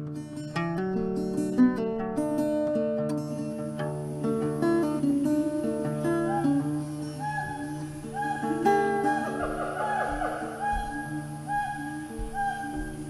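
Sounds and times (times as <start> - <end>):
acoustic guitar music: 0.0 - 13.0
gibbon whooping calls: 6.0 - 13.0.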